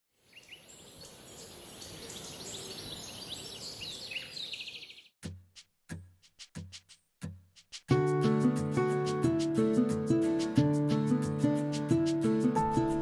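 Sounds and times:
steady outdoor hiss: 0.2s - 4.6s
birds chirping and trilling: 0.2s - 5.2s
low musical notes: 7.2s - 13.0s.

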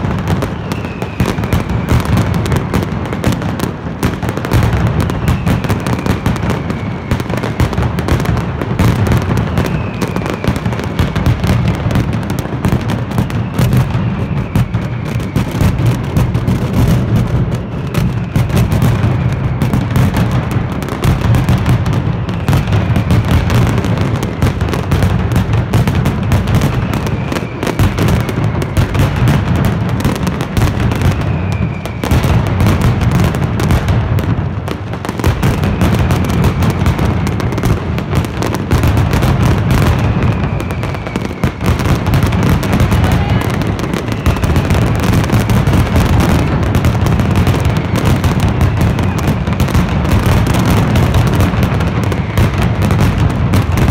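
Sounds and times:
firecrackers banging: 0.0s - 53.9s
faint falling whistles: 0.3s - 2.6s, 4.9s - 7.8s, 9.2s - 11.1s, 13.1s - 16.8s, 17.4s - 20.2s, 26.2s - 32.8s, 39.4s - 46.5s.

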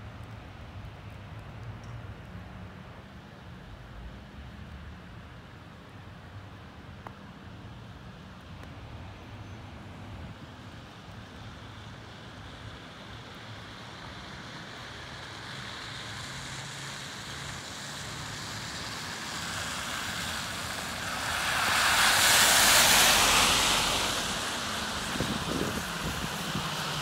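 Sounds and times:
tyres hissing through slush: 12.5s - 27.0s.

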